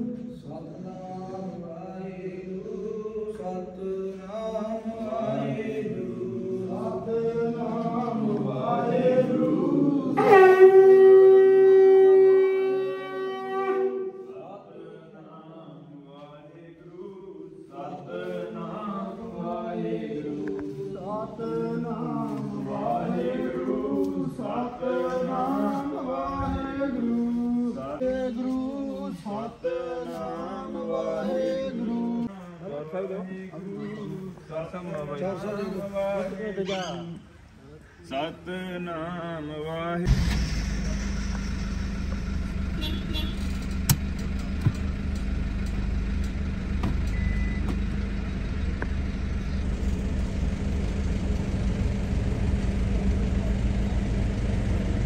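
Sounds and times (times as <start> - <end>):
men chanting: 0.0 - 40.1
long horn blast: 10.1 - 14.5, 40.1 - 44.1.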